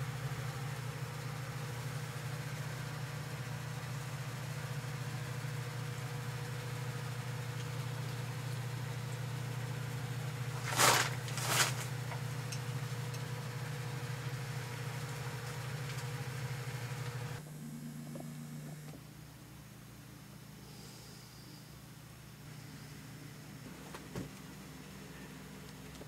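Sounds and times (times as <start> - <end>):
low mechanical hum: 0.0 - 26.0
hissing rustling bursts: 10.5 - 12.0.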